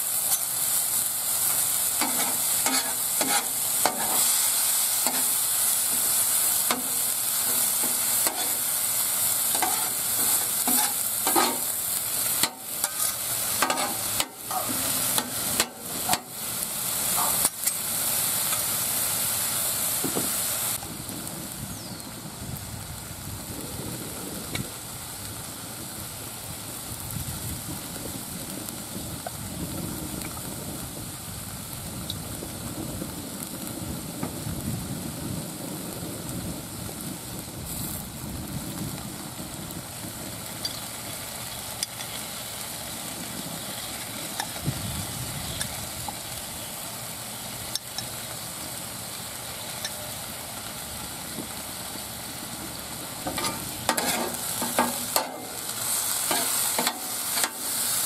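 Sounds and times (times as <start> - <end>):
meat and onions sizzling: 0.0 - 58.0
metal spatula scraping griddle: 1.4 - 18.9, 53.2 - 57.8.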